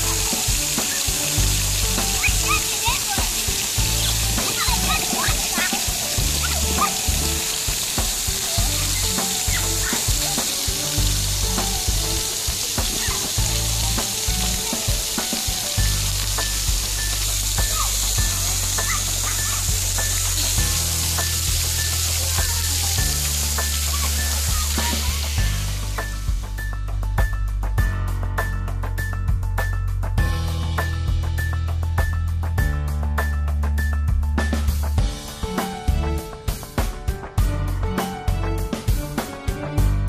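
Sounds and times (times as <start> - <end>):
fountain jets spraying water: 0.0 - 26.8
background music with bass: 0.0 - 40.0.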